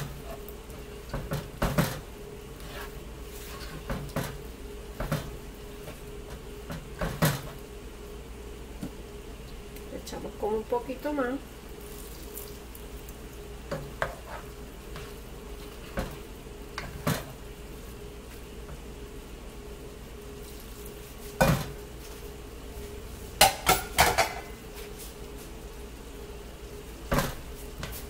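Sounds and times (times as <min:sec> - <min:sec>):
faint sizzle from pot: 0:00.0 - 0:28.0
spoon scraping against pot: 0:14.0 - 0:15.1.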